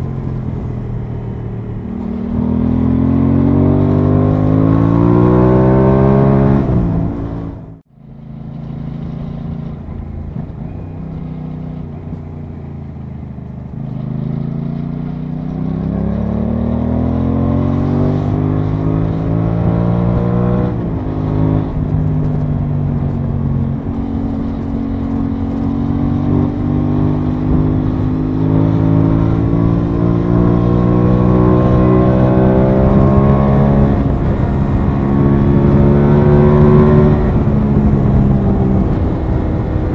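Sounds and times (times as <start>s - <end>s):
motorcycle engine revving: 0.0s - 39.9s
wind rush: 15.4s - 39.9s.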